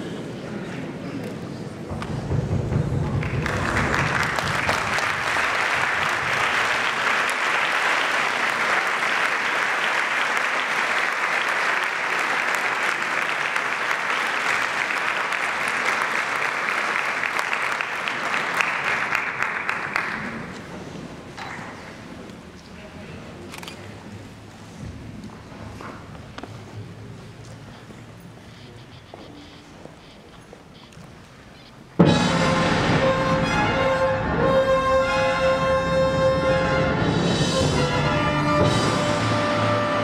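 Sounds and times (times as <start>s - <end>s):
audience applauding: 3.0s - 20.7s.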